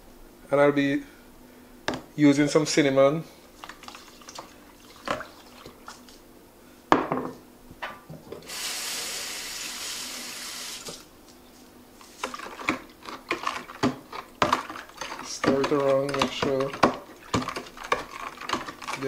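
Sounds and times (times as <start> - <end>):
kitchen faucet running: 8.4 - 11.0
spoon scraping in plastic pitcher: 12.0 - 19.0.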